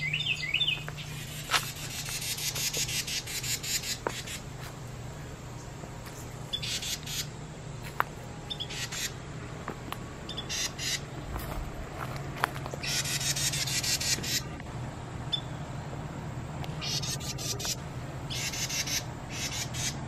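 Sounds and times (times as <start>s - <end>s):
wrens chattering calls: 0.0s - 4.6s, 5.4s - 7.4s, 8.5s - 9.2s, 10.3s - 11.2s, 12.7s - 14.6s, 16.7s - 20.0s.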